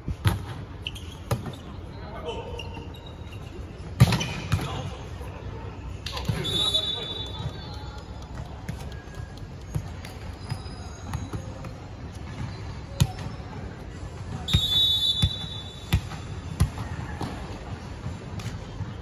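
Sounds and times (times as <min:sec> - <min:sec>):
referee's whistle: 0:06.3 - 0:07.8, 0:14.5 - 0:16.0.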